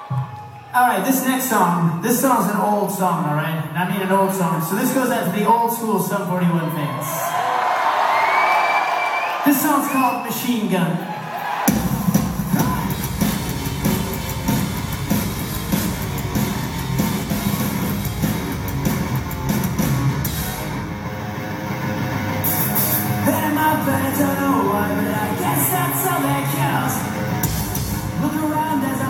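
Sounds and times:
punk rock band playing live: 11.7 - 29.0
person singing: 23.2 - 27.3.

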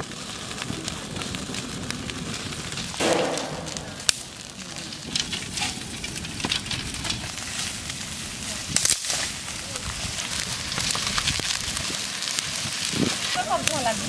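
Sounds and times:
wood fire crackling: 0.0 - 14.0
sharp pop of fire: 2.9 - 7.2, 8.7 - 9.4.

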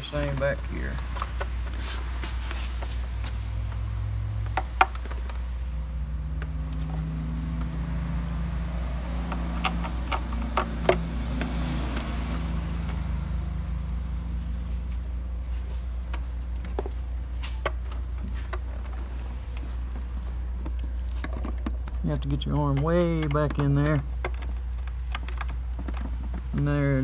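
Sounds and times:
low steady hum: 0.0 - 27.0
hand tools clicking on metal: 20.5 - 26.8.

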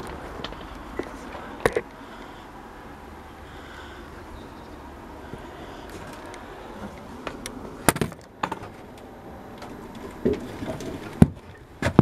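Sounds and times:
knocks and clunks climbing in: 5.9 - 12.0.

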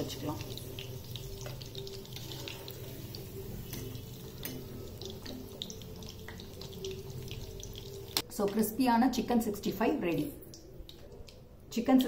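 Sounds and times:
oil popping and crackling: 0.0 - 8.3
chicken deep-frying in hot oil: 0.0 - 12.0.

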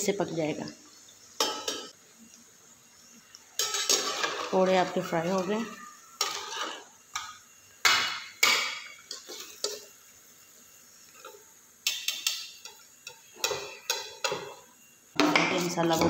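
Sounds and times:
metal utensils clinking on wok: 1.4 - 2.0, 3.6 - 9.9, 11.2 - 14.6.

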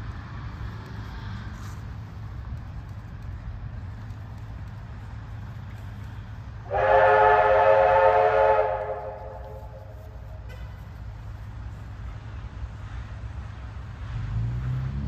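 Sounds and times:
steam locomotive whistle: 6.7 - 10.6.

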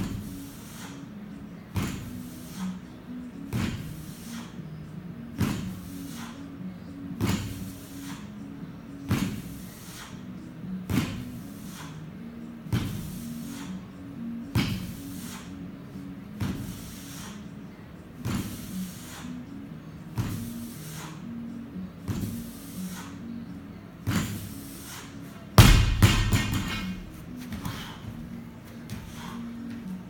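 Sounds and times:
barbell thudding on floor mat: 25.6 - 27.8.

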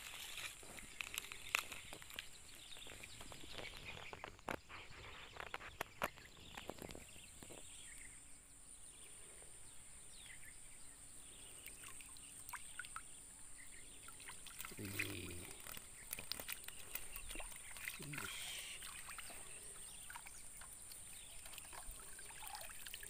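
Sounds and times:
clicks and rustles: 0.0 - 7.6, 14.6 - 18.2
faint bird chirps: 0.1 - 23.0.

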